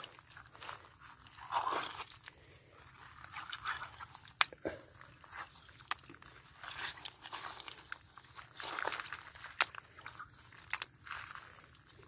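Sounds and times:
footsteps crunching on reeds: 5.0 - 12.0.

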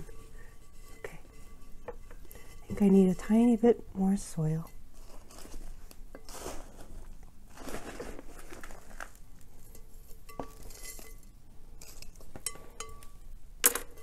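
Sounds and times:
soil and roots rustling: 2.1 - 12.5
plastic pot scraping out: 6.3 - 9.2.

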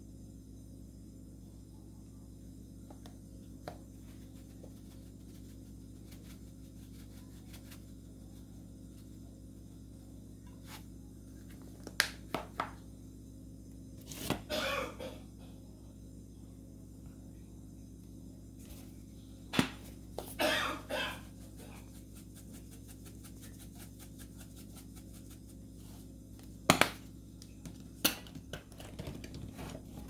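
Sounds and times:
steady low hum: 0.0 - 30.0
spice shaker rattling: 21.4 - 25.8.

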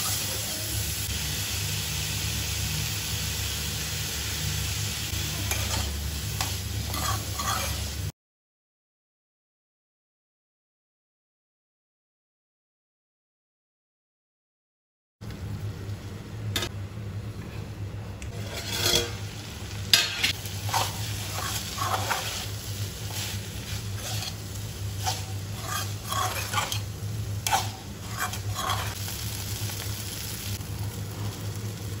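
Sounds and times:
light sizzle: 0.0 - 8.1, 15.2 - 32.0
spatula scraping metal pan: 5.4 - 5.9, 6.8 - 7.9, 18.3 - 19.2, 19.9 - 29.0
steady low hum: 15.2 - 29.4.

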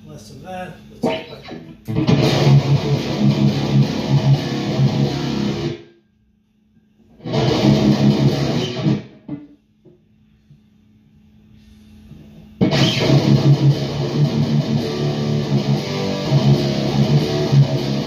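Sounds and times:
distorted electric guitar riffing: 1.0 - 5.8, 7.2 - 9.5, 12.6 - 18.0.

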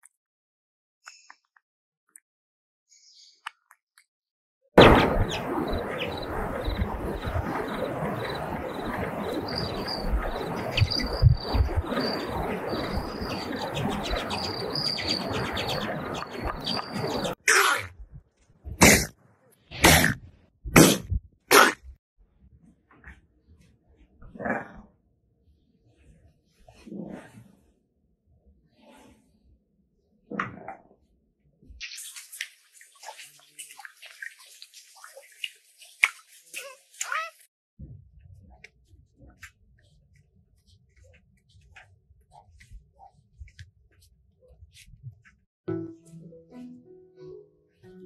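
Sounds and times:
short loud noisy burst: 4.8 - 10.8
outdoor rushing noise: 4.8 - 17.4
water splashing and dripping: 4.8 - 17.4, 31.8 - 37.4
high thin bird chirps: 5.3 - 17.4
sharp splash: 31.8 - 37.3.

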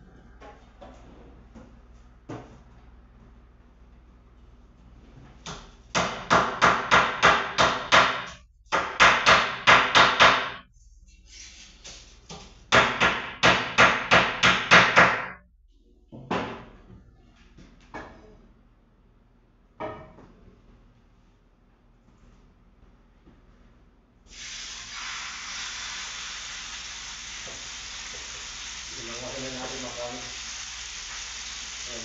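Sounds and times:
hard strikes on kitchen board: 6.0 - 10.6.

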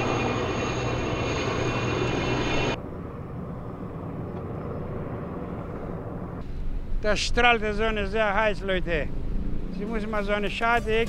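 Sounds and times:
street traffic: 0.0 - 7.0, 7.7 - 11.0
aircraft engine drone: 0.0 - 11.0.

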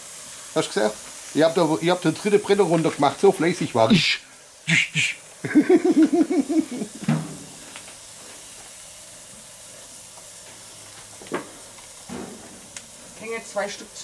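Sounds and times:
steak sizzling on a grill: 0.0 - 14.0
person speaking: 0.7 - 5.2.

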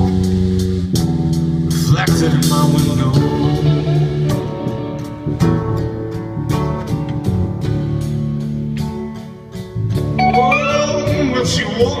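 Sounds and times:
live band music: 0.0 - 12.0
acoustic guitar strumming chords: 10.2 - 12.0.

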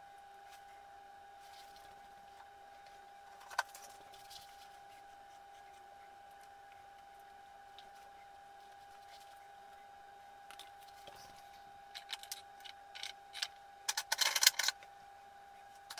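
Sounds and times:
faint high-pitched whine: 0.0 - 15.9.

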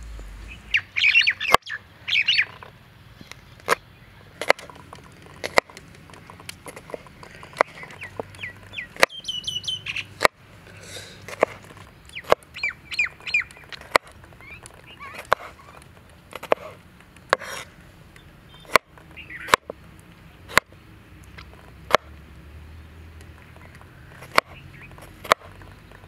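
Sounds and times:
bird chirping: 0.0 - 11.0, 11.8 - 15.9, 18.1 - 19.7, 23.0 - 26.0.

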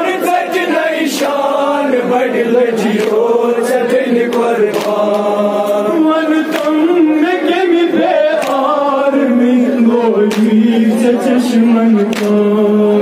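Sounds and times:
man chanting through microphone: 0.0 - 13.0
chest-beating slaps: 4.3 - 5.8, 8.4 - 8.7.

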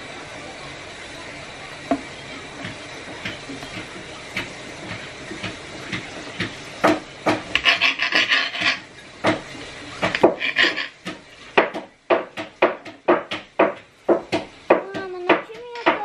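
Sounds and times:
knife chopping on cutting board: 4.4 - 16.0
knife blade scraping board: 7.3 - 9.4, 10.0 - 11.2.

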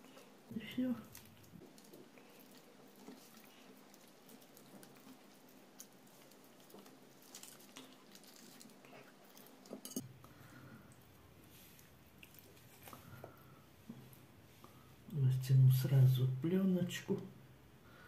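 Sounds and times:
wet squishes of raw fish: 1.0 - 15.1.

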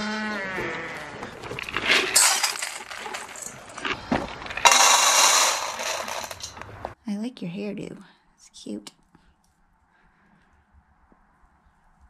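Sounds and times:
feed pellets rattling into metal bowl: 1.6 - 3.9, 4.5 - 6.6.

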